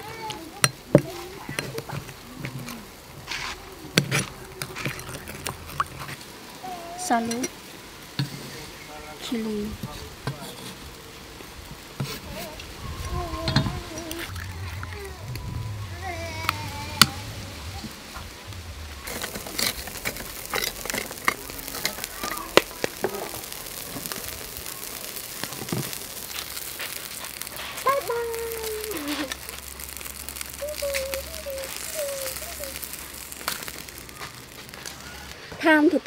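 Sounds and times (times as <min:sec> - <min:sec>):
light crackle: 0:00.0 - 0:36.0.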